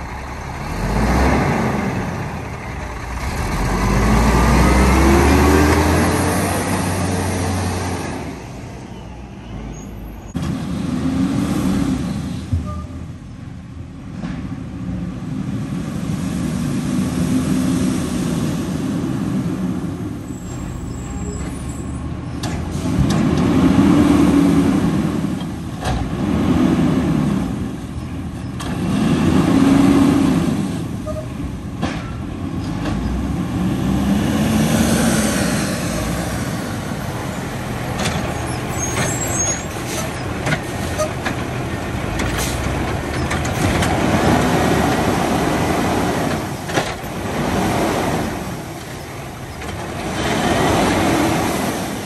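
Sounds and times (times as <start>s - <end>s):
garbage truck diesel engine revving: 0.0s - 8.6s, 10.4s - 12.5s, 22.0s - 52.0s.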